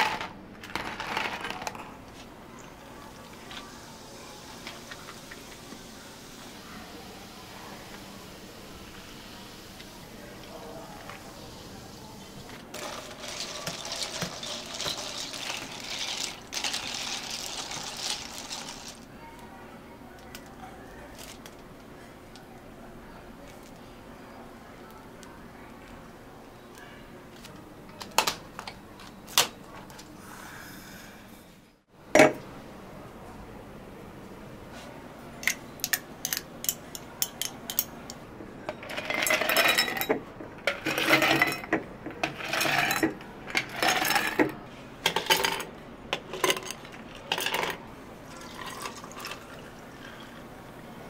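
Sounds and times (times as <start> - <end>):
cups and utensils clinking: 12.7 - 19.0, 35.4 - 50.4
liquid poured into cup: 48.2 - 50.4.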